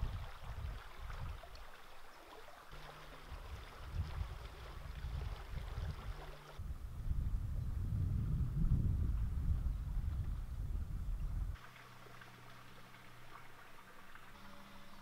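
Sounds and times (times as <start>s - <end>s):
wind buffeting microphone: 0.0s - 1.5s, 3.2s - 11.6s
stream water over stones: 0.0s - 6.6s, 11.6s - 15.0s
faint low hum: 2.7s - 15.0s.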